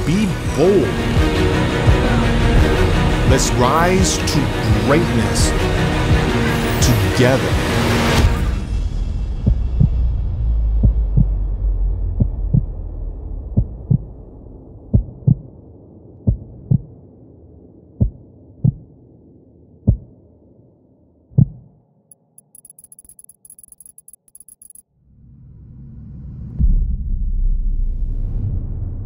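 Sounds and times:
heartbeat thumps: 9.4s - 10.0s, 10.8s - 11.3s, 12.2s - 12.7s, 13.5s - 14.2s, 14.9s - 15.5s, 16.2s - 17.0s, 18.0s - 18.9s, 19.9s - 20.1s, 21.4s - 21.7s
faint high crackling ticks: 22.1s - 24.8s.

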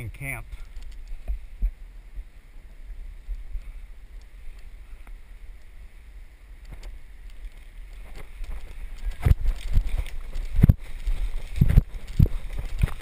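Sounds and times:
wind rumbling on microphone: 0.0s - 13.0s
faint ticks: 0.5s - 1.8s, 3.2s - 5.8s, 6.6s - 13.0s.

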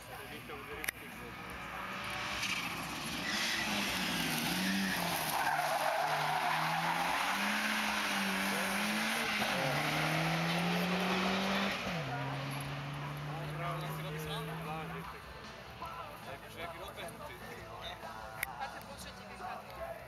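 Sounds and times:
car engine revving: 0.9s - 15.3s
tyres squealing: 1.9s - 14.6s.

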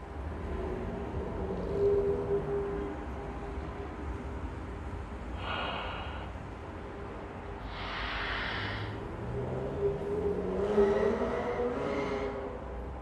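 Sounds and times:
car rumbling on road: 0.0s - 13.0s
breathy exhalations: 5.3s - 6.7s, 7.6s - 9.1s.

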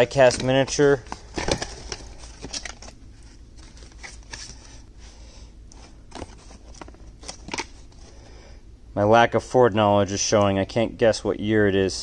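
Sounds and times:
packaging rustles and taps: 0.0s - 3.0s
low steady hum: 0.0s - 12.0s.

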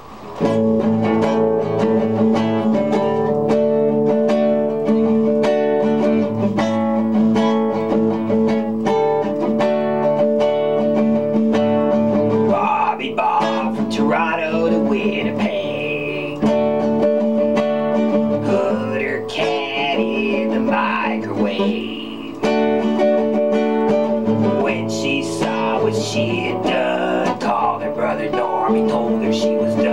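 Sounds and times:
nylon-string guitar strumming: 0.0s - 29.9s
person singing: 12.3s - 16.6s, 18.2s - 22.7s, 24.2s - 29.9s.

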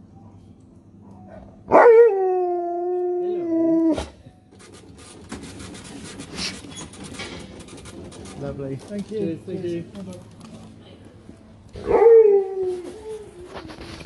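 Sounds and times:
dog howling: 1.7s - 4.1s, 11.8s - 13.6s
rattling clatter: 4.7s - 9.4s.

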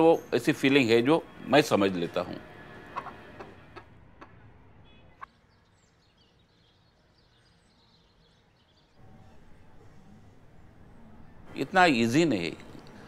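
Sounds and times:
small birds chirping: 3.0s - 9.4s.

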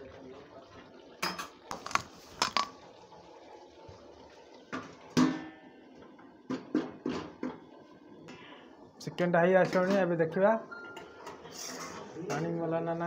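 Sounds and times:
lid clanging on pan: 1.2s - 2.7s.

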